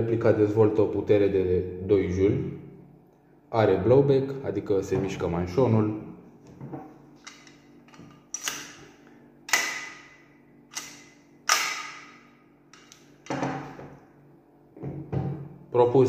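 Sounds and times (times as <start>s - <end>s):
pistol slide clacking: 8.3s - 8.8s, 9.5s - 13.1s.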